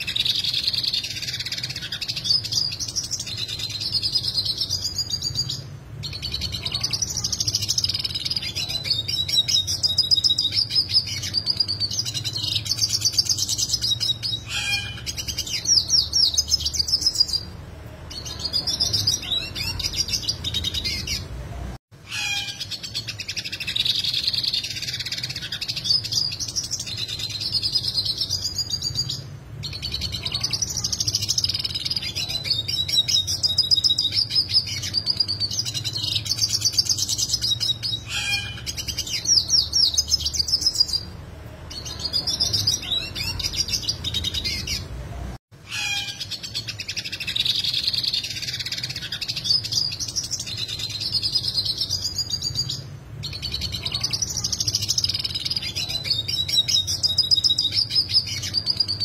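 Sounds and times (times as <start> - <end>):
bird twittering song with trills: 45.7 - 59.0.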